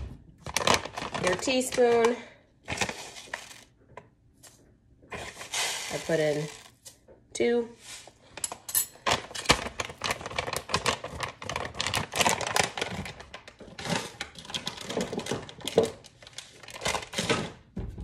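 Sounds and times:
plastic bag crinkling: 0.3s - 3.8s, 5.2s - 6.9s, 9.0s - 17.4s
seeds being spooned out: 5.1s - 6.7s.

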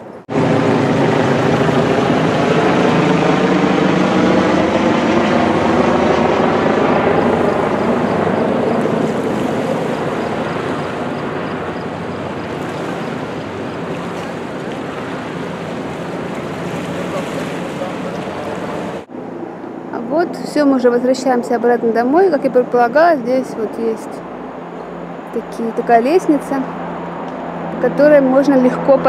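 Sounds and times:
helicopter passing over: 0.0s - 29.0s
river rapids rushing: 7.1s - 19.1s.

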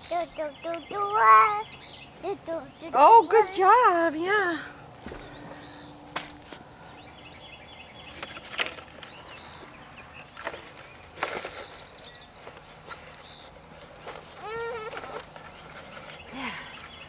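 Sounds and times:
bird chirping: 0.0s - 4.4s, 5.2s - 17.0s
shovel scraping compost: 10.3s - 17.0s.

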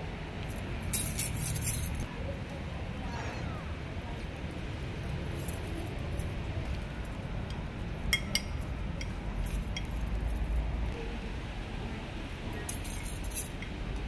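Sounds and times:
metal jingle clinking: 0.5s - 2.1s, 12.6s - 13.7s.

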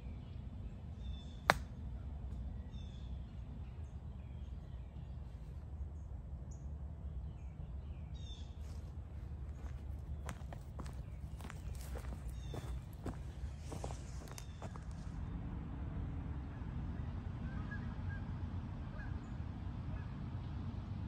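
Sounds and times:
low background rumble: 0.0s - 21.0s
golf club striking ball: 1.5s - 1.8s
faint bird calls: 9.6s - 14.8s.

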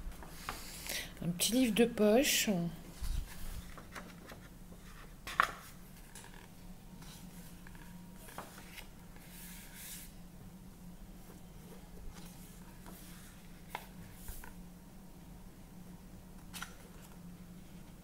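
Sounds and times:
book pages rustling: 2.9s - 10.1s, 11.2s - 14.6s.

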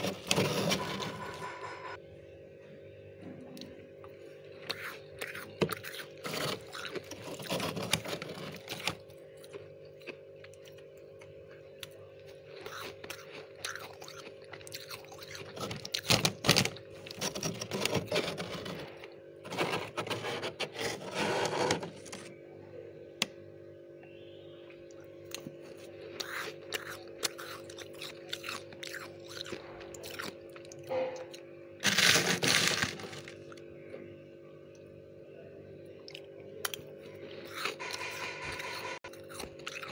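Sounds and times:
frost crunching: 0.0s - 1.8s, 4.5s - 11.0s, 12.2s - 22.4s, 31.8s - 33.7s
steady low hum: 0.0s - 39.9s.

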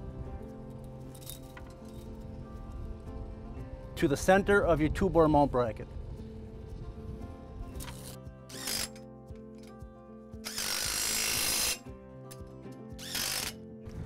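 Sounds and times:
background music: 0.0s - 14.0s
power tool spinning a socket: 7.8s - 9.0s, 10.4s - 11.8s, 13.0s - 13.6s.

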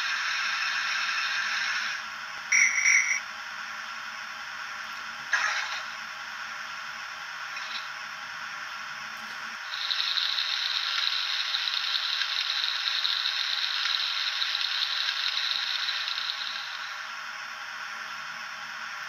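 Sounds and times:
steam hiss from small speaker: 9.6s - 17.2s.

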